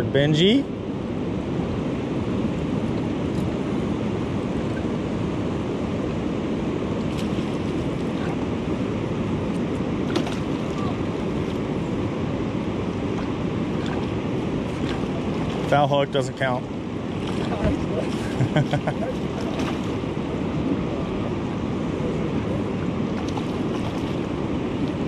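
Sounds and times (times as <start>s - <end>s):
river water rushing over rocks: 2.4s - 25.0s.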